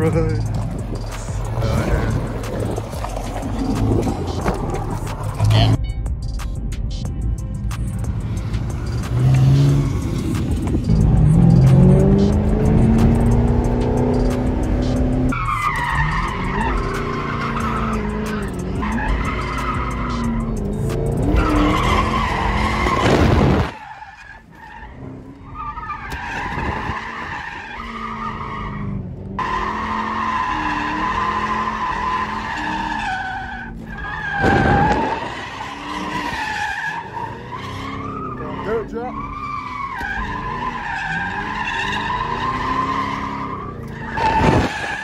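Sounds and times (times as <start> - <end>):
car engines revving: 0.0 - 5.8, 7.4 - 45.0
tires squealing: 0.0 - 5.8, 8.3 - 45.0.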